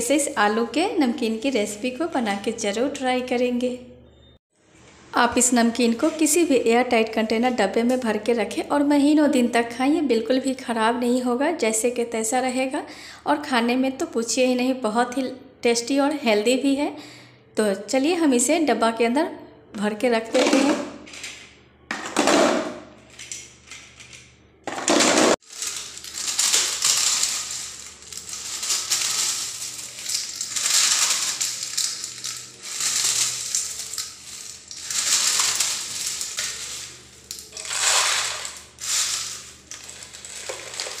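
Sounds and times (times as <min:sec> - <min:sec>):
dry snacks crunching and rustling: 0:25.4 - 0:41.0.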